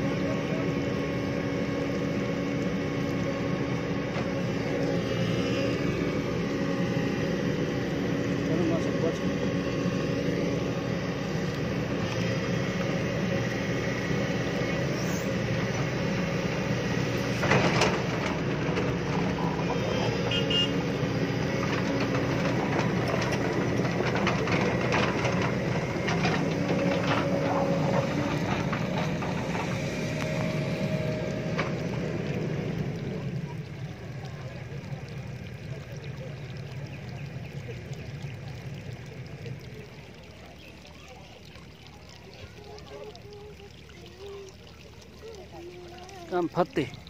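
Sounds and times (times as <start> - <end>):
excavator diesel engine running: 0.0 - 36.5
steel tracks clanking: 21.4 - 30.6.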